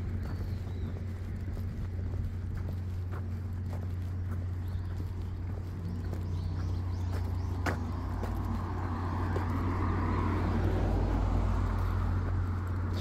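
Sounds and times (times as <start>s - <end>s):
low rumble: 0.0s - 13.0s
road vehicle passing: 0.0s - 13.0s.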